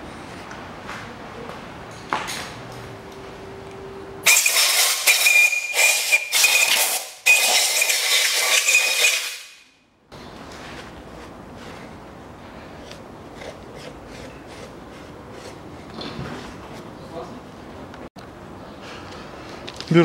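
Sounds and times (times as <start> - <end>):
compressed air blow gun hissing: 4.3 - 9.4.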